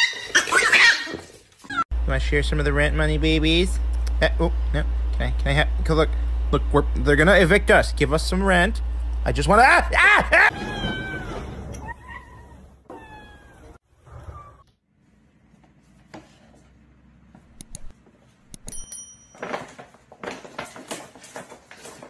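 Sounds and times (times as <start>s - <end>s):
cat meowing: 10.5s - 14.6s.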